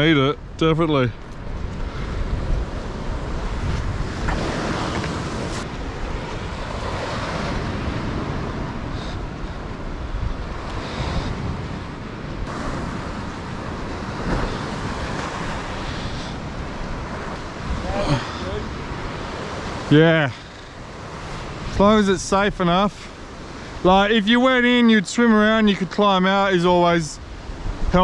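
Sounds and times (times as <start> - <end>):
wind buffeting microphone: 0.0 - 19.9
ocean surf breaking on rocks: 0.0 - 28.0.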